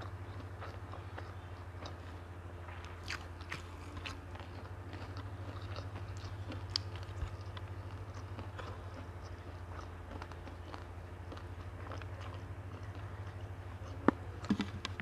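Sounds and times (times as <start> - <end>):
person chewing food: 0.0 - 15.0
steady low hum: 0.0 - 15.0.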